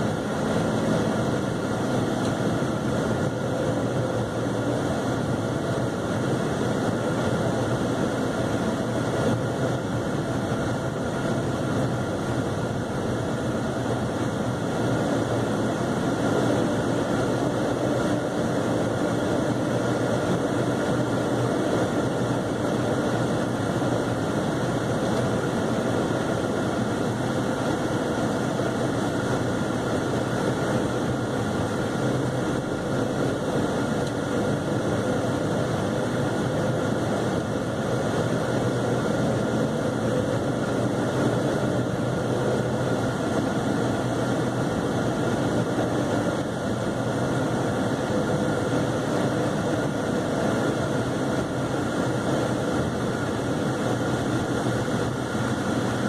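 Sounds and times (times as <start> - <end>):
car engine running: 0.0 - 49.8.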